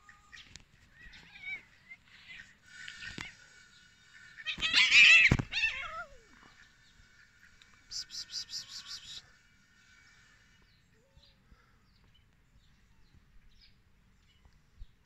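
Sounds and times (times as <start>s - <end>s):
cat yowling: 4.4s - 6.4s.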